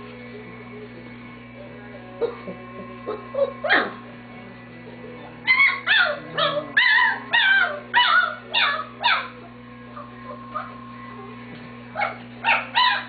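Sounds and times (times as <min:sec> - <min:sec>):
puppies whining and yelping: 0:02.2 - 0:04.0, 0:05.4 - 0:11.3, 0:12.0 - 0:13.0.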